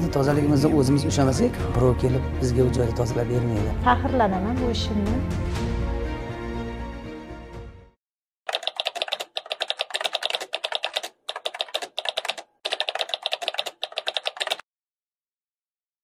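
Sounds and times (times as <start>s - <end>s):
rapid keyboard typing: 8.5s - 14.6s.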